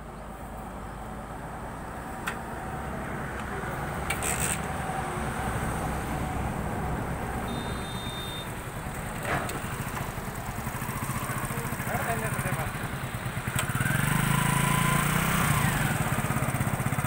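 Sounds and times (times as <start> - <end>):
motorcycle engine idling: 7.4 - 17.0.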